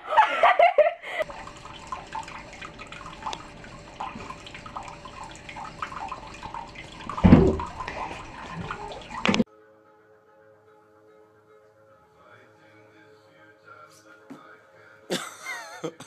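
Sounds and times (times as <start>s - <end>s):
tap water running: 1.2s - 9.5s.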